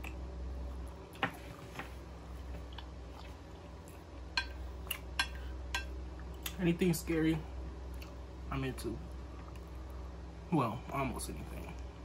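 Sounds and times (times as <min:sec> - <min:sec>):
chewing food: 0:00.0 - 0:05.4.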